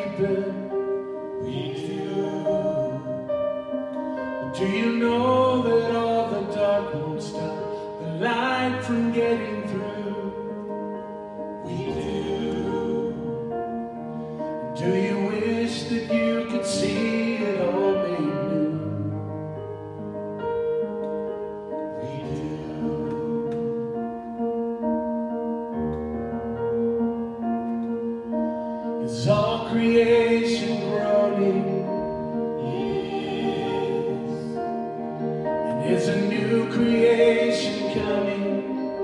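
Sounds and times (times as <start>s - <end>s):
man singing lead: 0.0s - 3.6s, 4.3s - 13.8s, 14.4s - 19.4s, 21.8s - 24.1s, 29.0s - 39.0s
keyboard: 0.0s - 39.0s.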